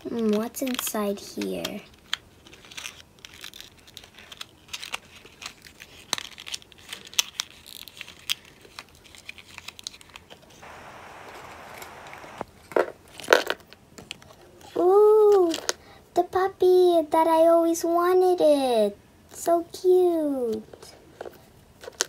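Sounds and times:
wrapping paper crinkling: 1.9 - 12.3
wrapping paper tearing: 2.0 - 10.2.

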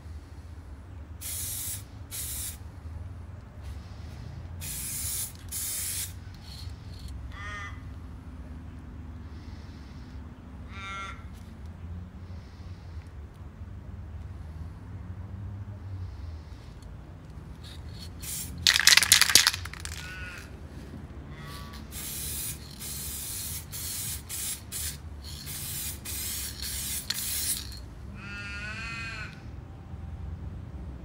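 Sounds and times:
spray paint can hissing: 1.2 - 2.6, 4.6 - 7.1, 17.6 - 20.4, 21.6 - 27.8.

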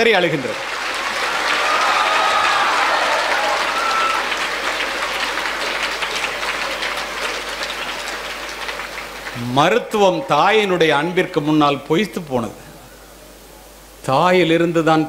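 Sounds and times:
audience applauding: 0.0 - 10.6.

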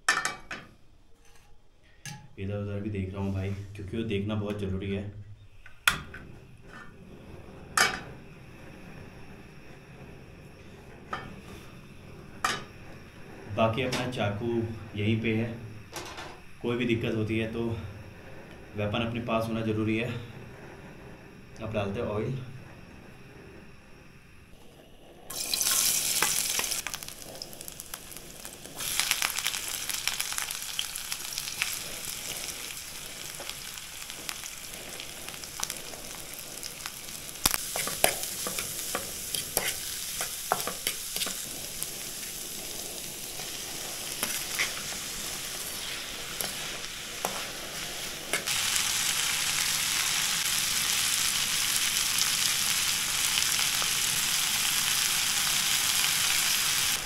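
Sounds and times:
utensil scraping a pan: 1.1 - 2.1, 37.1 - 48.5
hot oil sizzling in a pan: 25.3 - 57.0.

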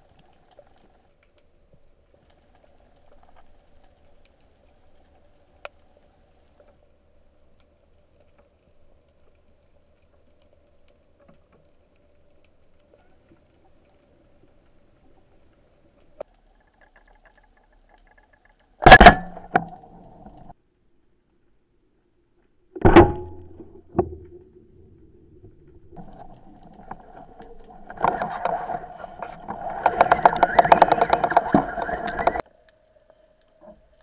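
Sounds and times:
faint ticks: 0.0 - 18.8
speargun crack underwater: 18.8 - 20.5.

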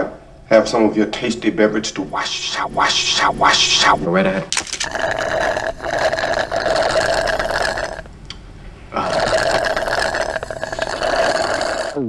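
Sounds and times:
slurping drink through straw: 4.6 - 8.1, 9.0 - 12.0.

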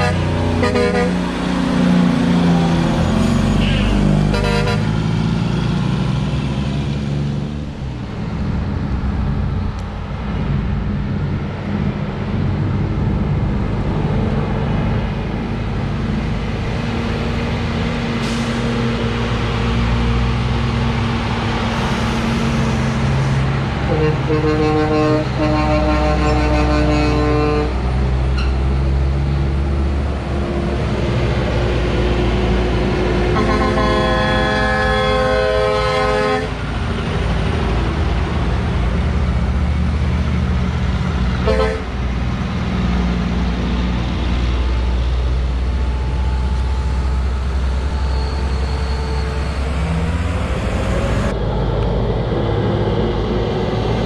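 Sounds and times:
air horn: 0.0 - 1.2, 3.6 - 4.9, 23.8 - 27.8, 33.3 - 36.6, 41.4 - 41.9
diesel truck engines rumbling: 0.0 - 54.0.

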